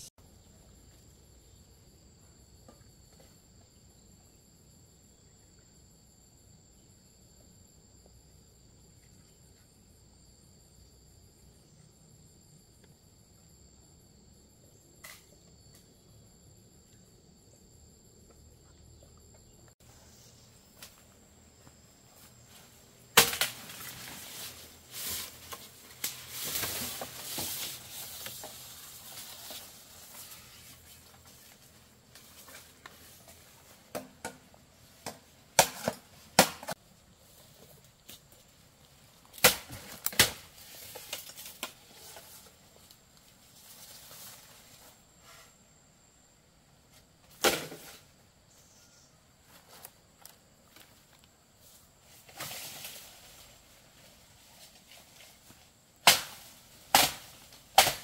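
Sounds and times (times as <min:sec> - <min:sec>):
sharp cracks and knocks: 0:23.1 - 0:24.4, 0:35.0 - 0:36.8, 0:39.3 - 0:41.8, 0:47.3 - 0:48.0, 0:56.0 - 0:58.0.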